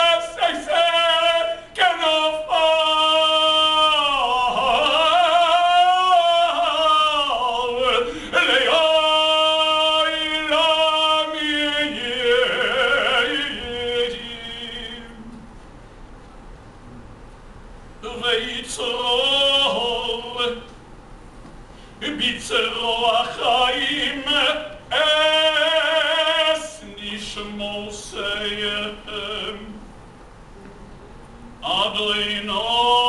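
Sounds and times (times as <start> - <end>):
man singing slow chant: 0.0 - 15.4, 18.0 - 20.7, 22.0 - 29.8, 31.6 - 33.0.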